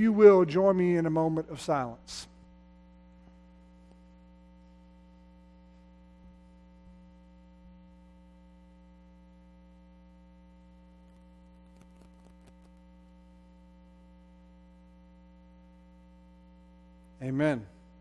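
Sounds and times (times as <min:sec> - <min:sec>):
electrical mains hum: 0:00.0 - 0:18.0.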